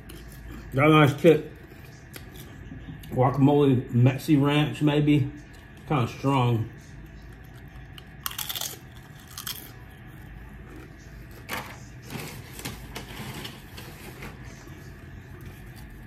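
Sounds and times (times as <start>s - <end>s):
tortilla chips crunching: 7.1s - 13.5s.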